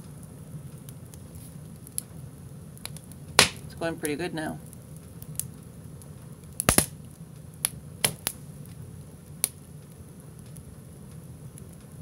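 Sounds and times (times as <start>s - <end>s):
firewood crackling: 0.0s - 12.0s
loud sharp pops: 3.4s - 3.7s, 6.6s - 7.0s.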